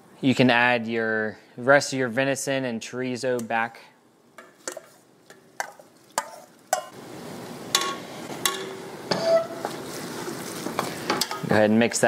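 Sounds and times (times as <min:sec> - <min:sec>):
meat sizzling: 0:04.5 - 0:11.4.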